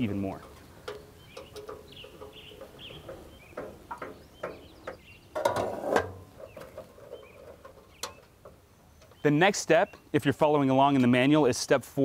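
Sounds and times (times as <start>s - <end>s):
metal knocks and clicks: 0.4s - 8.6s
metal scraping clatter: 5.4s - 8.2s.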